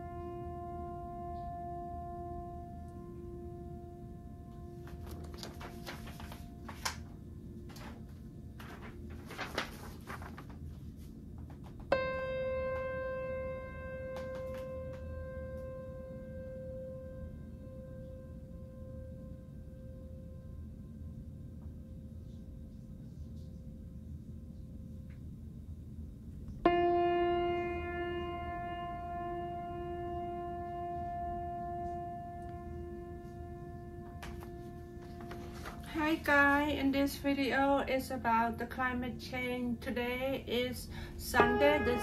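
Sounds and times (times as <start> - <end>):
paper rustling: 4.8 - 11.9, 34.2 - 36.6
held musical note: 26.6 - 36.9, 41.0 - 42.0.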